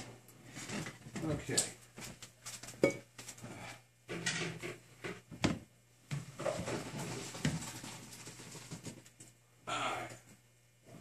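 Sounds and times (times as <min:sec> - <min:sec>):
pots and utensils clattering: 0:04.1 - 0:04.8, 0:06.4 - 0:09.0
knocks and scrapes: 0:06.1 - 0:09.3.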